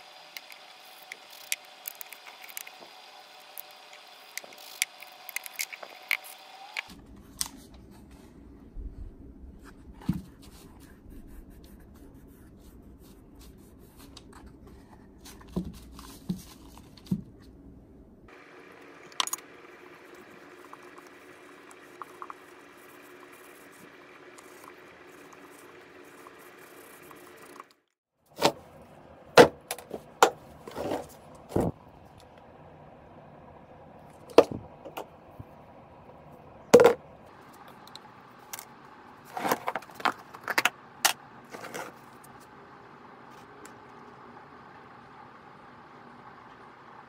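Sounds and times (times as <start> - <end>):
steady hum: 17.4 - 47.0.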